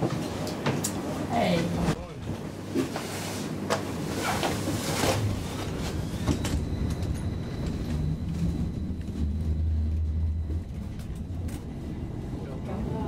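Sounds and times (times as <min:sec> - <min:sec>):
tram rumbling: 0:00.0 - 0:13.0
low hum: 0:04.7 - 0:13.0
faint high whine: 0:05.0 - 0:13.0.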